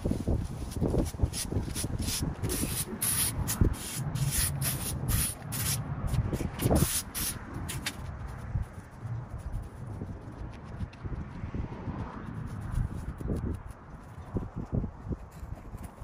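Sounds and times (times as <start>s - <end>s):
rake scraping grass on concrete: 0.7s - 8.1s.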